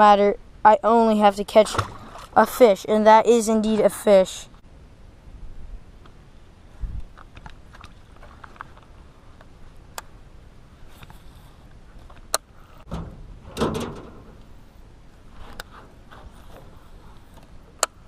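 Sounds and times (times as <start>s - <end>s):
low thump in metal boat: 12.9s - 14.5s.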